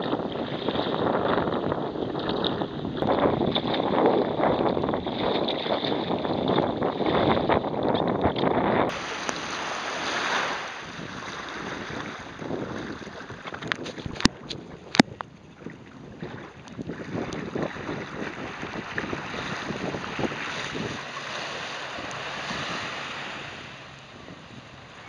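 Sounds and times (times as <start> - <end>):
water sloshing and waves washing: 0.0 - 25.0
wind buffeting microphone: 0.0 - 25.0.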